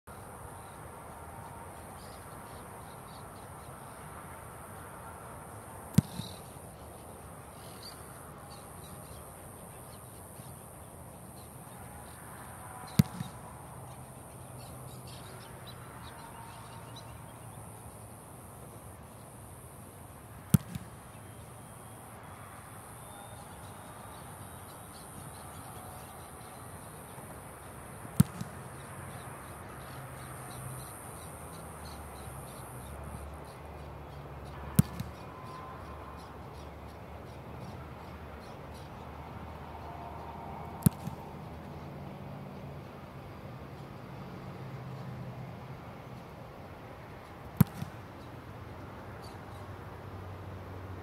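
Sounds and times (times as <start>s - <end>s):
foot kicking a football: 5.9s - 6.5s, 13.0s - 13.4s, 20.5s - 21.0s, 28.2s - 28.6s, 34.8s - 35.2s, 40.8s - 41.2s, 47.6s - 48.0s.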